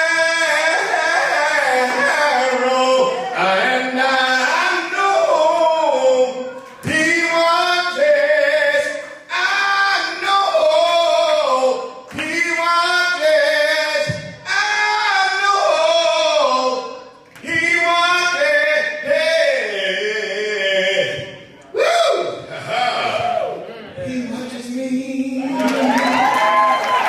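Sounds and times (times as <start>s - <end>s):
voices singing slow song: 0.0s - 26.0s.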